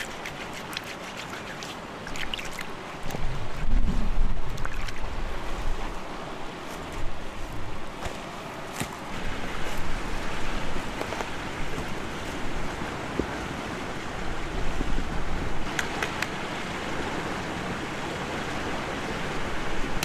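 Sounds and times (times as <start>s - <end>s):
stream running over rocks: 0.0s - 20.0s
wind buffeting microphone: 3.0s - 6.2s.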